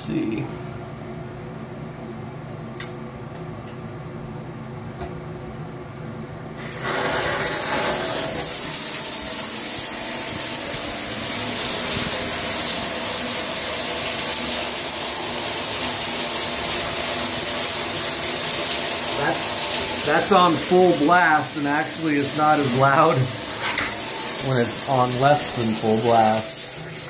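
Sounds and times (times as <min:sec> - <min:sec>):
shower water spraying onto tiles: 0:06.6 - 0:27.0.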